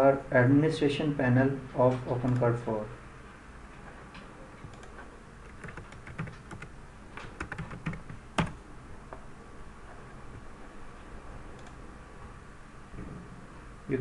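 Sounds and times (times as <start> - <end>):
typing on a computer keyboard: 4.6 - 6.7, 7.3 - 8.6.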